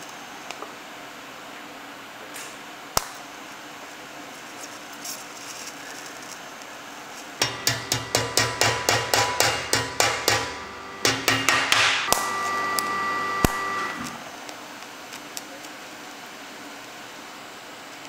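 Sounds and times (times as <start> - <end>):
hammer striking sheet steel: 7.4 - 14.2.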